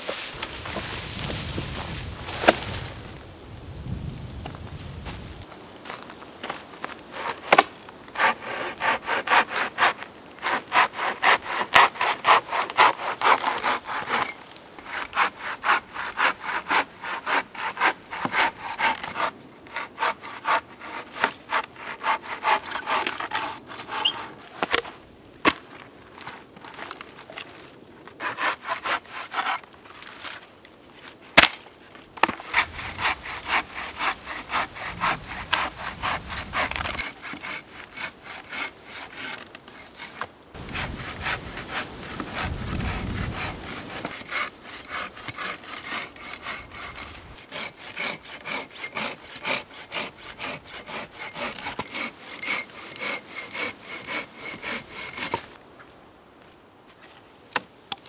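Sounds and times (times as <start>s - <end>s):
hand saw cutting wood: 7.1s - 24.8s, 28.2s - 30.4s, 32.2s - 55.6s.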